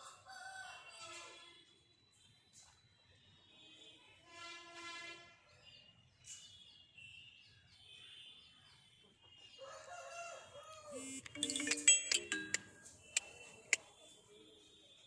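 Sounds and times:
rooster crowing: 9.6s - 11.2s
music: 11.1s - 13.0s.

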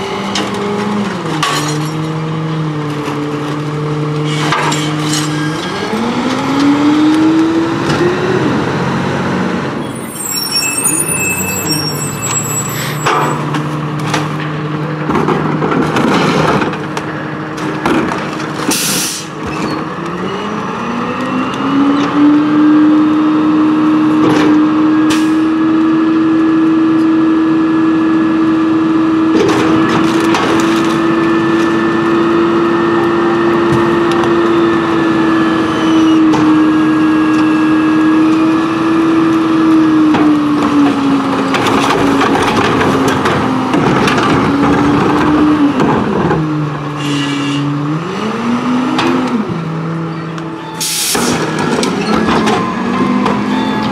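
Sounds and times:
knocks and bangs of carts: 12.2s - 19.9s, 29.3s - 31.8s, 39.9s - 46.9s, 51.1s - 53.9s.

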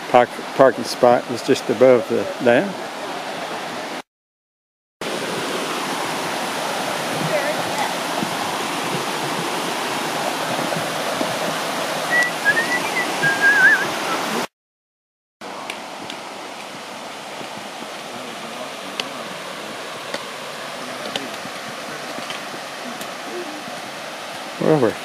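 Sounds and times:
water rushing over spillway: 0.0s - 4.0s, 5.0s - 14.5s, 15.4s - 25.0s
warbling whistle: 12.1s - 14.4s.

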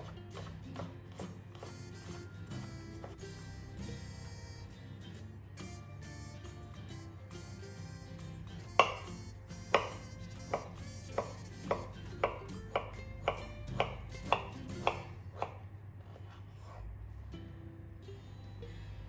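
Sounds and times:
knife slicing on cutting board: 9.7s - 16.9s.

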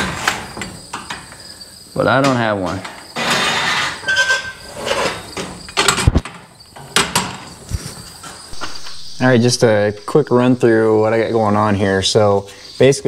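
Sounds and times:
short metal squeak: 3.2s - 5.3s
metal scraping and clanking: 3.2s - 6.0s, 8.2s - 10.4s.

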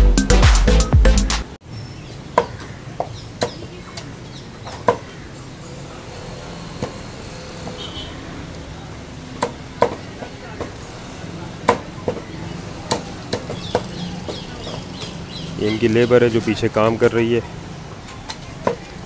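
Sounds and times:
shop background noise: 1.6s - 19.0s
cleaver chopping on wooden block: 9.4s - 10.8s, 11.6s - 12.3s, 12.9s - 14.8s.

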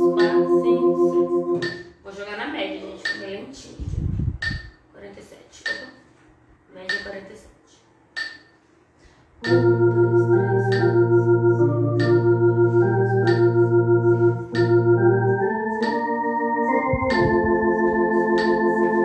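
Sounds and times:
electronic organ chords: 0.0s - 1.9s, 9.4s - 19.0s
metronome clicking: 6.9s - 7.2s, 8.2s - 8.5s, 9.4s - 10.1s, 10.7s - 11.1s, 12.0s - 12.3s, 13.2s - 13.7s, 14.5s - 15.0s, 15.8s - 16.1s.

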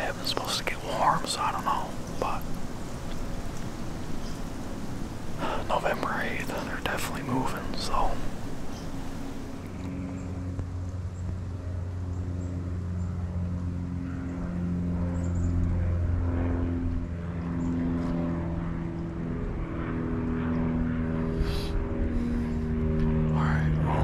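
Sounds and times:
propeller airplane droning: 0.0s - 24.0s.

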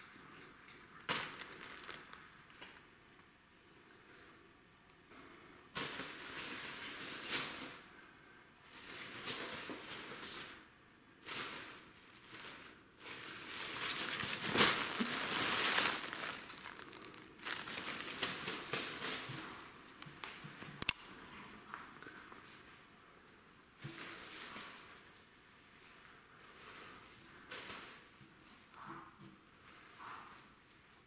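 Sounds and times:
cellophane bag crinkling: 1.1s - 2.3s, 12.3s - 19.6s.

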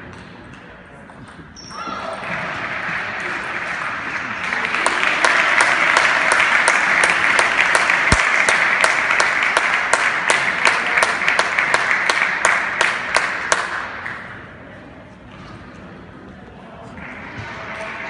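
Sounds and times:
spectators applauding: 2.1s - 14.2s.

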